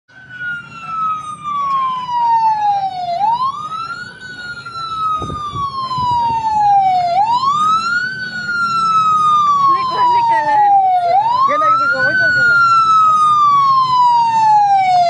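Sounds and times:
low engine rumble: 0:00.1 - 0:15.0
siren wailing: 0:00.1 - 0:15.0.

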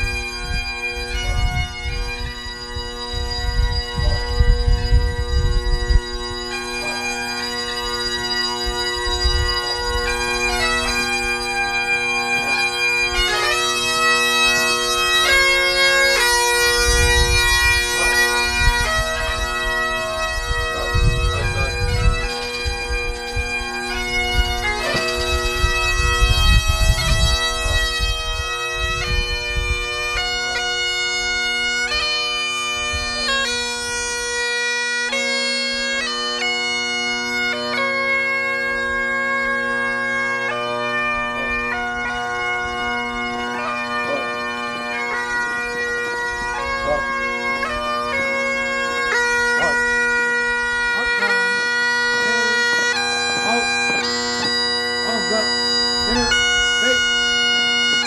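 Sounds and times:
bagpipe playing slow melody: 0:00.0 - 0:58.0.

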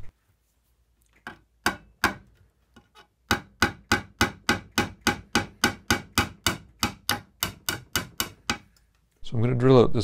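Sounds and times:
hammer tapping on wood: 0:01.2 - 0:08.8.

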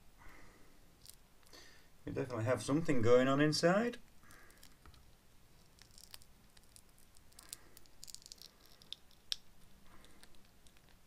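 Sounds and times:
rubber mold clicks and crackles: 0:04.4 - 0:11.0.

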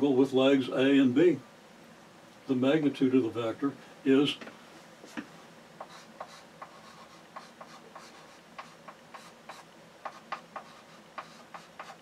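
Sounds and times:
chalk scratching on blackboard: 0:05.8 - 0:12.0.

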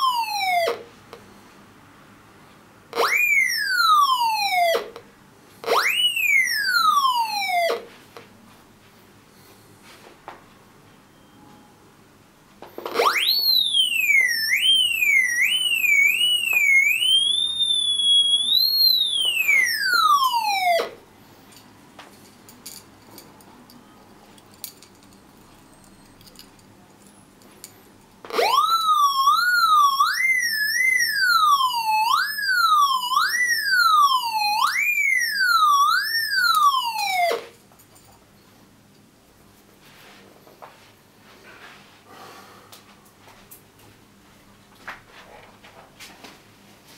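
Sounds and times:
metal detector warbling tone: 0:03.0 - 0:04.8, 0:12.9 - 0:20.6.

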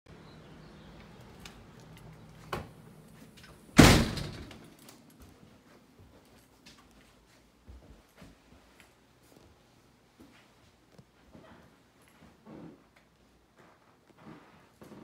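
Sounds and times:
door shutting thud: 0:03.7 - 0:04.7.

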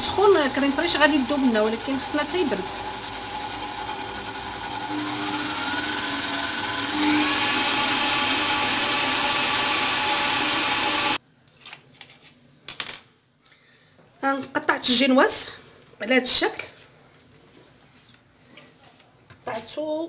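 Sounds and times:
stand mixer motor running: 0:00.0 - 0:11.2.

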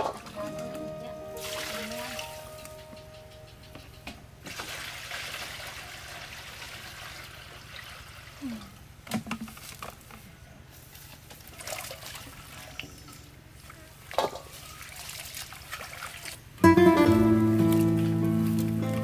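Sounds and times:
water running and splashing: 0:01.4 - 0:02.7, 0:04.4 - 0:08.4, 0:11.3 - 0:16.5.

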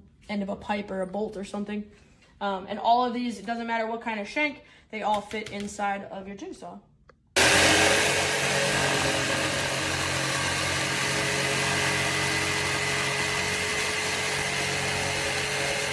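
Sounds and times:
jigsaw cutting wood: 0:07.4 - 0:15.9.

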